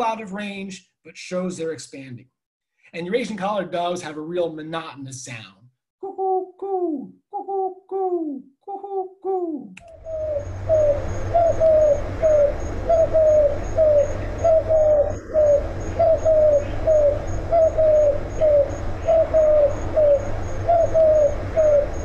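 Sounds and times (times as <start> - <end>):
dove cooing: 6.0 - 22.0.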